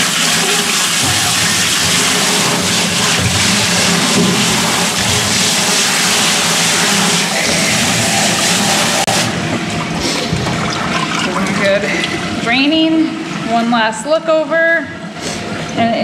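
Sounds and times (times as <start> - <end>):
hose nozzle spraying water into sink: 0.0 - 9.3.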